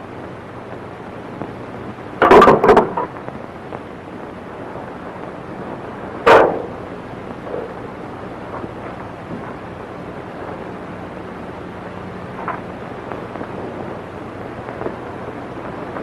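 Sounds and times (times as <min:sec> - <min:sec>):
old film hiss: 0:00.0 - 0:16.0
loud clattering bangs: 0:02.2 - 0:03.0, 0:06.2 - 0:06.8.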